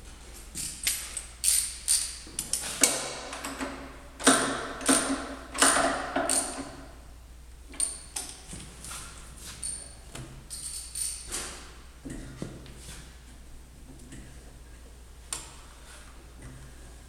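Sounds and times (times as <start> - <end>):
metallic clacks with ring: 10.5 - 11.3.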